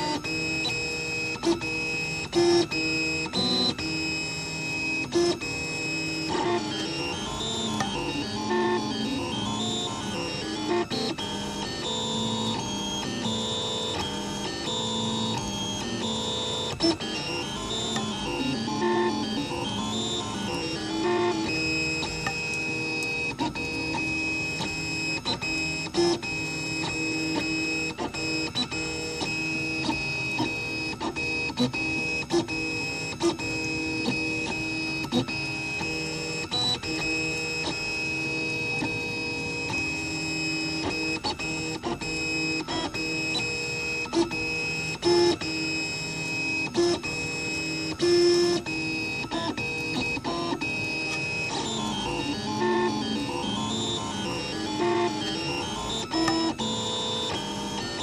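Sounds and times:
printer motors whining: 0.0 - 58.0.

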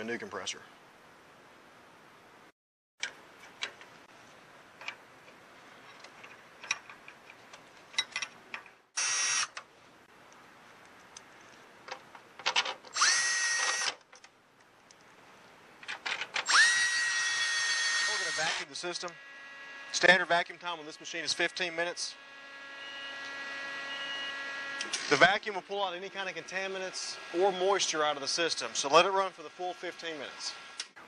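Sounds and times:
cordless screwdriver whining: 9.0 - 9.6, 12.9 - 14.0, 16.4 - 19.3.

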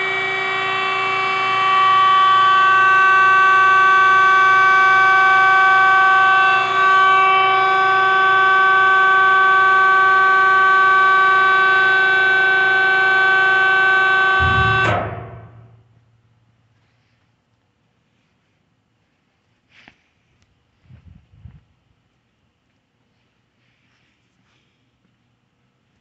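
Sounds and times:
hydraulic pump motor whine: 0.0 - 16.1
low clunk: 14.4 - 15.9.

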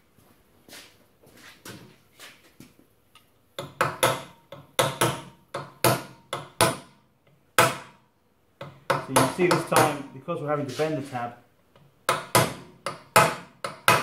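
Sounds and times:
hammer striking metal punch: 3.6 - 7.0, 7.6 - 8.0, 8.6 - 10.1, 12.1 - 14.0.

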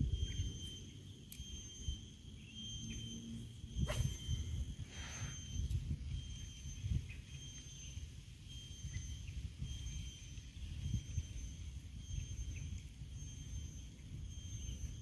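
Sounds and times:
wind rumble on microphone: 0.0 - 2.1, 3.0 - 15.0
faint high-pitched pulsing tone: 0.0 - 15.0.

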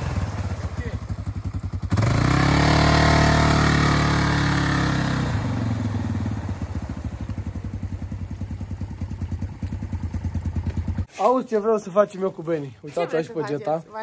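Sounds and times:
quad bike engine running: 0.0 - 11.1.

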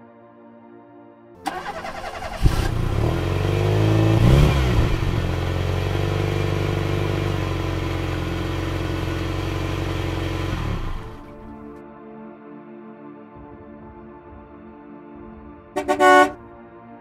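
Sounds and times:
engine starting and revving: 1.4 - 11.6.

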